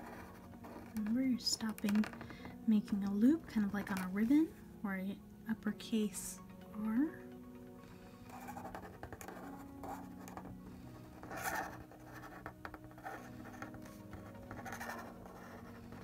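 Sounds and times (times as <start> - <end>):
marker scratching on paper: 0.0 - 1.1, 8.3 - 10.5, 11.1 - 16.0
soft background music: 0.0 - 16.0.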